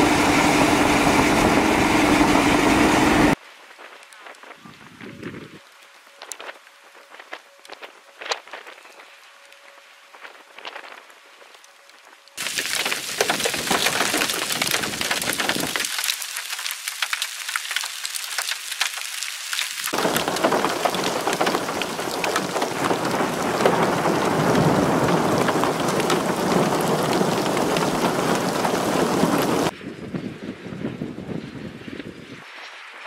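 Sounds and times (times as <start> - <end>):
rain hissing on pavement: 12.3 - 29.7
hailstones ticking on ground: 12.4 - 29.7.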